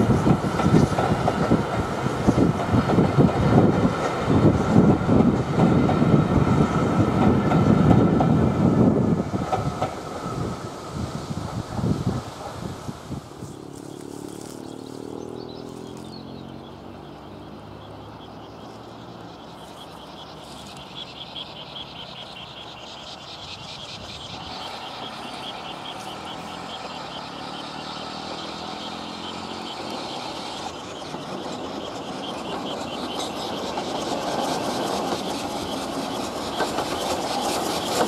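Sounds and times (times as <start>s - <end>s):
distant steam train rumble: 0.0s - 38.0s
rapid even chirping: 13.4s - 38.0s.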